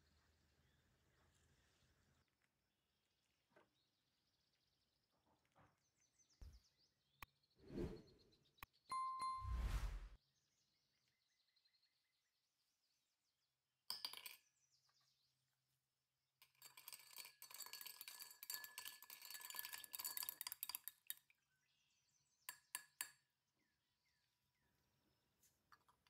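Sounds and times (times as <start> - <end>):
small hard objects clinking: 16.4 - 21.3.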